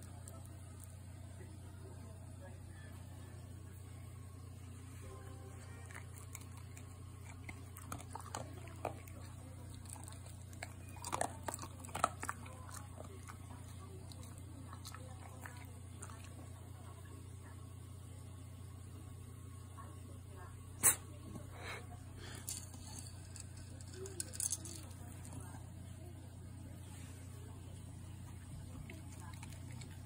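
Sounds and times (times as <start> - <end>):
dog crunching dry kibble: 5.6 - 16.6, 28.4 - 30.0.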